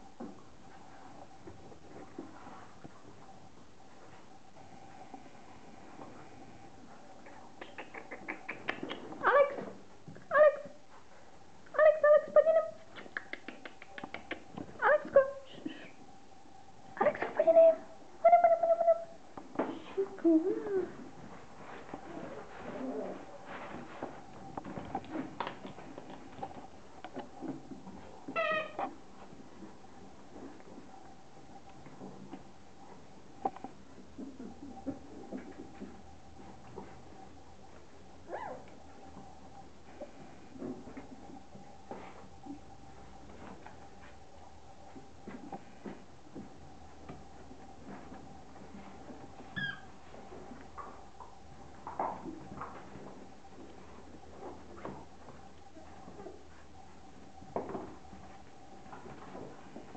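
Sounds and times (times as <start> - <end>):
puppies scratching and shifting: 0.0 - 11.5, 19.4 - 59.9
puppy yelp: 38.3 - 38.7, 49.6 - 49.9
puppy squeak: 49.6 - 49.9.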